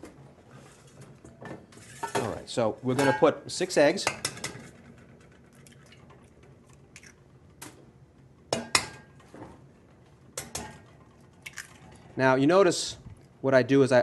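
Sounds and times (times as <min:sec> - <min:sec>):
eggs cracking on a metal bowl: 0:10.4 - 0:11.9.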